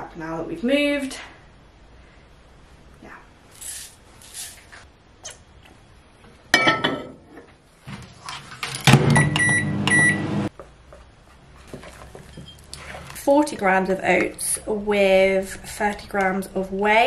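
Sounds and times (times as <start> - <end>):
microwave beeping: 8.9 - 10.5
microwave humming: 8.9 - 10.5.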